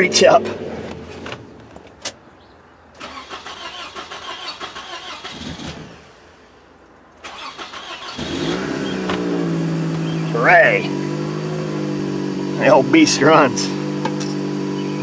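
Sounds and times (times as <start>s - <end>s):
car engine idling: 2.9s - 15.0s
car starter cranking: 3.0s - 6.3s, 7.2s - 10.2s.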